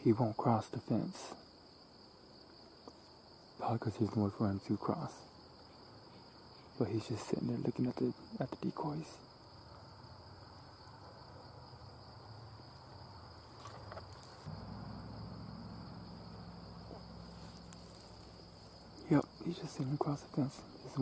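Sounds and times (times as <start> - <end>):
high-pitched insect drone: 7.8 - 21.0
low rumble: 14.4 - 19.5.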